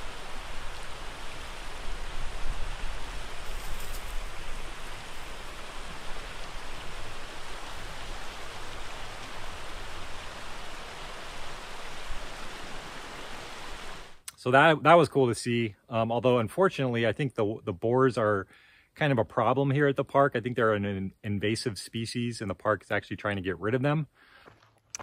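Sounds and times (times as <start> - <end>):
steady rushing outdoor noise: 0.0 - 14.2.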